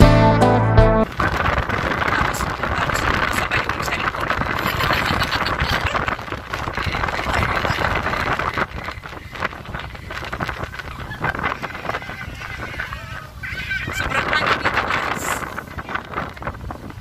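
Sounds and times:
guitar music: 0.0s - 1.1s
wind buffeting microphone: 1.0s - 17.0s.

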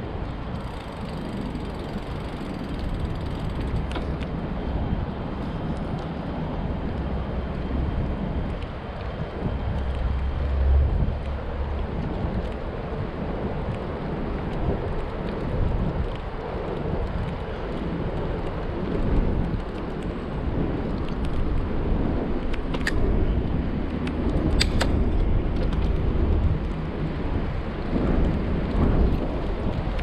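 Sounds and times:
bicycle road noise: 0.0s - 30.0s
wind buffeting microphone: 0.0s - 30.0s.

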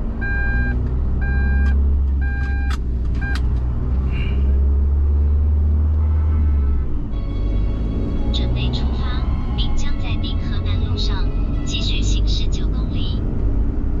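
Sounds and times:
van engine and tyres rumbling: 0.0s - 14.0s
vehicle warning beeper: 0.2s - 3.4s.

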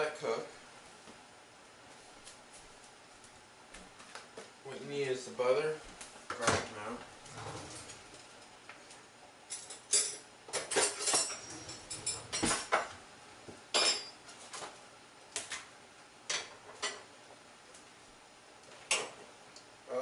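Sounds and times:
dishes and utensils clinking: 9.5s - 12.9s, 13.7s - 14.2s.

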